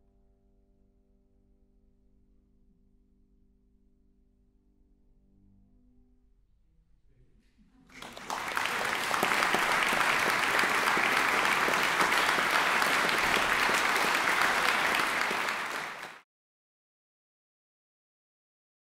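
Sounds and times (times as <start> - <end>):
audience applauding: 7.9 - 16.2.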